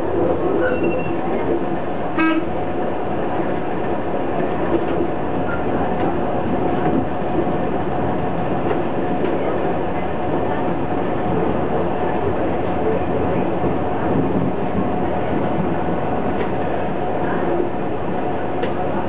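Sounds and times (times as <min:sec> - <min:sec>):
train engine and wheels on rails: 0:00.0 - 0:19.0
brief tone: 0:00.6 - 0:01.2.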